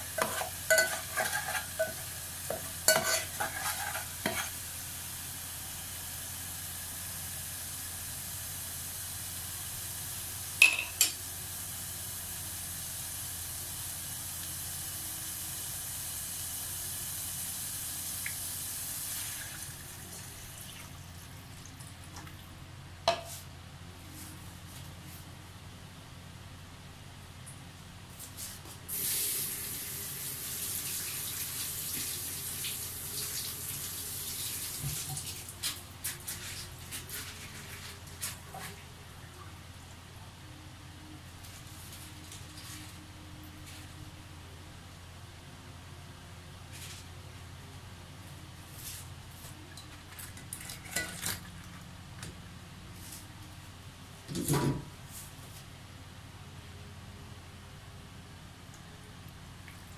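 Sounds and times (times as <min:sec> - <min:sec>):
water rushing hiss: 0:28.9 - 0:35.6.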